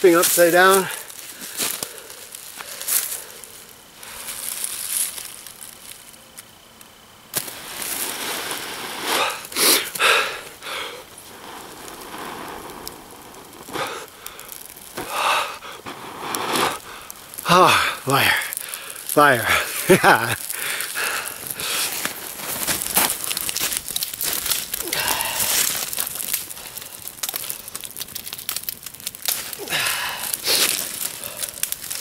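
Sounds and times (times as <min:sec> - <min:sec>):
person blowing breathy puffs: 0:08.4 - 0:12.8.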